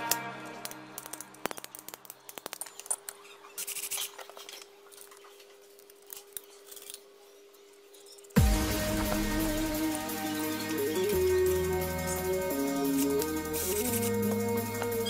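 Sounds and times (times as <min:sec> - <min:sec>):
plastic pipe pieces clicking: 0:00.0 - 0:04.7.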